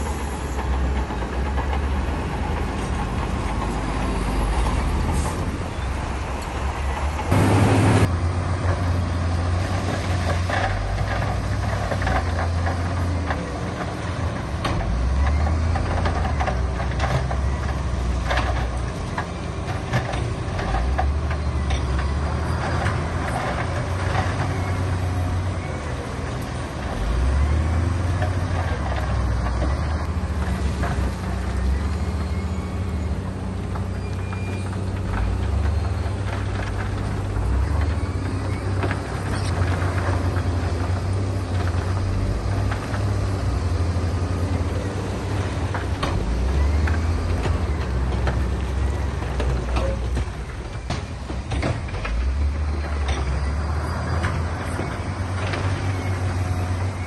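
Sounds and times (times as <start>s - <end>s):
heavy machinery diesel engines: 0.0s - 57.0s
loud rush of noise: 7.2s - 8.1s
metal clanks and knocks: 44.8s - 53.5s.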